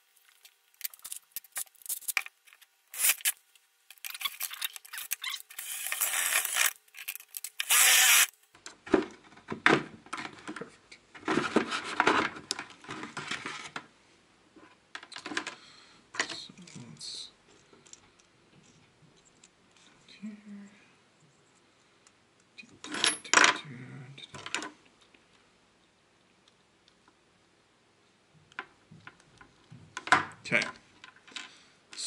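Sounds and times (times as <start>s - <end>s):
power drill boring through plastic: 5.2s - 6.8s, 7.5s - 8.3s.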